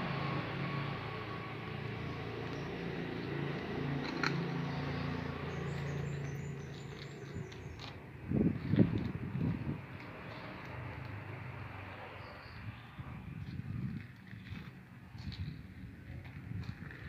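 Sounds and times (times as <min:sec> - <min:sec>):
low motor drone: 0:00.0 - 0:10.3.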